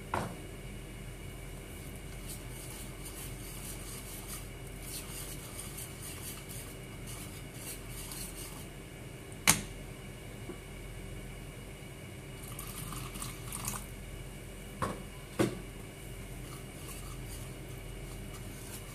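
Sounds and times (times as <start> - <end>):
whisk scraping around a bowl: 1.7 - 8.8, 16.0 - 18.9.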